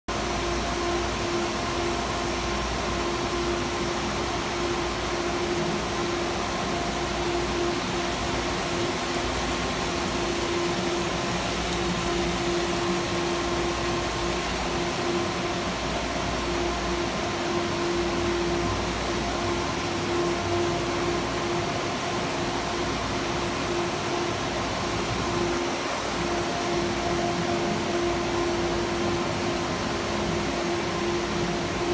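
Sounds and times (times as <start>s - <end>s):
pump hum: 0.1s - 31.9s.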